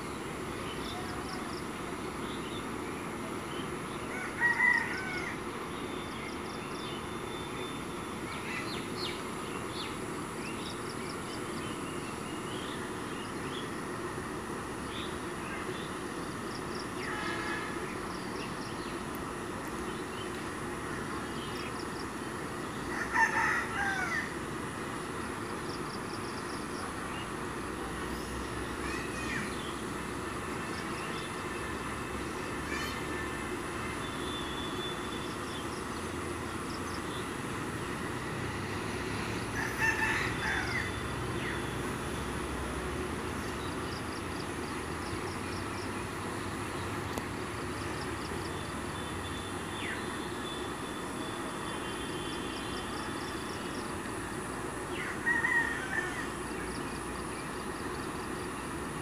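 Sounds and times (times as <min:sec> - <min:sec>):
rooster crowing: 0:04.1 - 0:05.4, 0:22.9 - 0:24.4, 0:39.5 - 0:41.6, 0:54.9 - 0:56.6.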